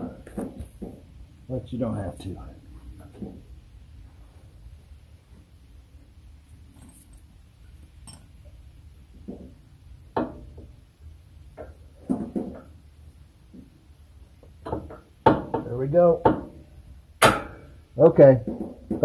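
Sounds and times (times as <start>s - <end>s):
metal bolt clinking: 6.6s - 8.6s.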